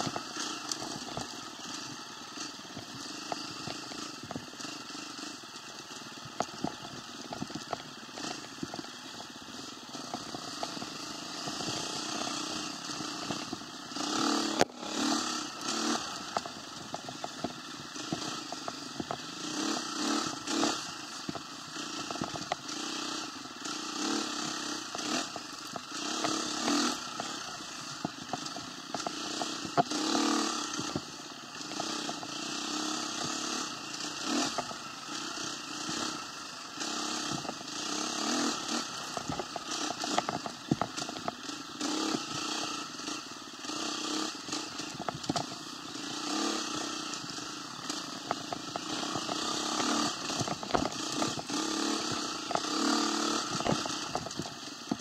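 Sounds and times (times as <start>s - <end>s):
rattling and crackling clicks: 0.0s - 55.0s
small vehicle engine running: 0.0s - 55.0s.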